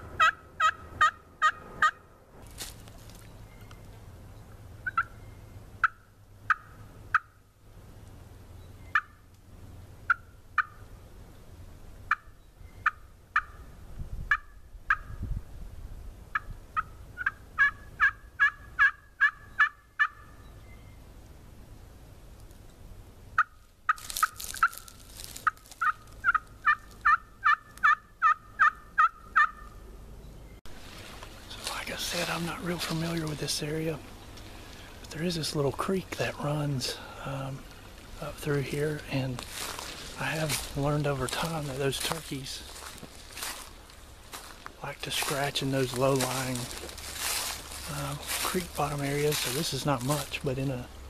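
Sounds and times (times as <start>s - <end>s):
turkey call: 0.0s - 2.0s, 4.8s - 5.2s, 5.8s - 7.3s, 8.9s - 9.2s, 10.1s - 10.8s, 12.1s - 13.7s, 14.3s - 15.1s, 16.3s - 20.4s, 23.4s - 29.8s.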